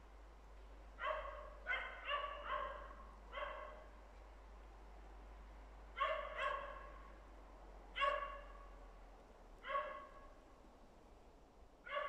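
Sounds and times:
dog barking: 0:01.0 - 0:03.9, 0:06.0 - 0:07.1, 0:08.0 - 0:08.6, 0:09.6 - 0:10.2.

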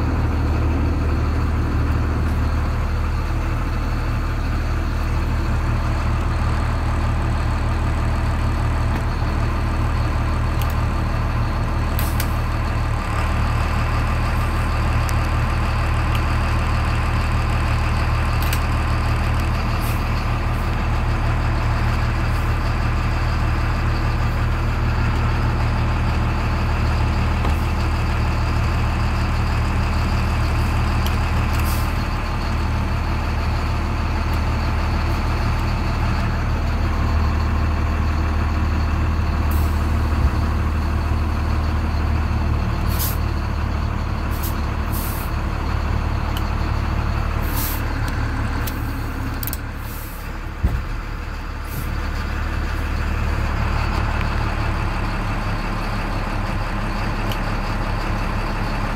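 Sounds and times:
diesel engine idling: 0:00.0 - 0:58.9.

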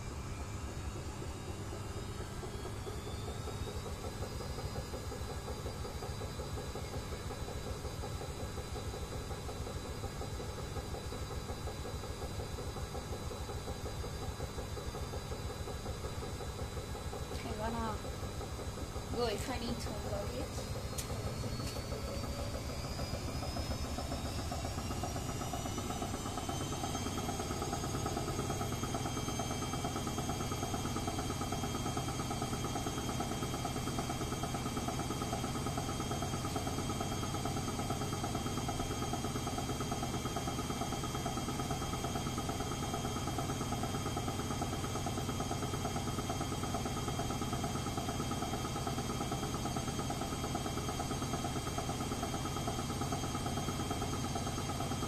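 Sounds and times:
washing machine motor whine: 0:00.0 - 0:55.0.

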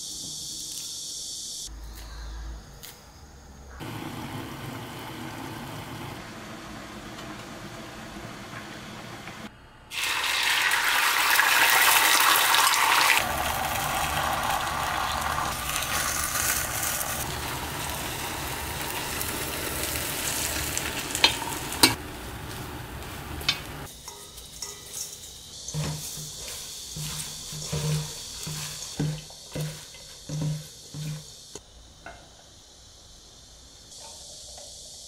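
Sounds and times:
egg sizzling in a hot pan: 0:09.9 - 0:31.4
vegetables rustling in steel bowl: 0:15.5 - 0:31.4.

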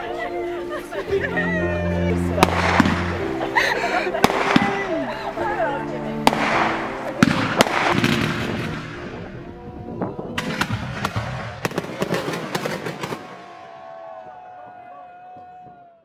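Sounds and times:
fireworks banging and crackling: 0:02.3 - 0:03.5, 0:04.1 - 0:05.1, 0:06.2 - 0:14.4.

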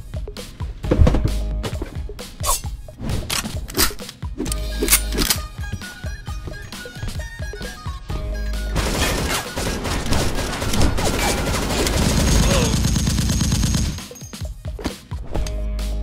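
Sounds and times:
background music: 0:00.0 - 0:16.0
rapid gunshots: 0:08.8 - 0:14.2.

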